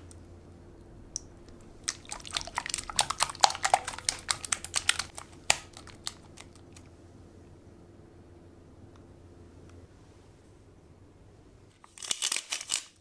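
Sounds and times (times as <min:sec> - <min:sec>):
whisk beating in glass bowl: 0:01.8 - 0:06.8.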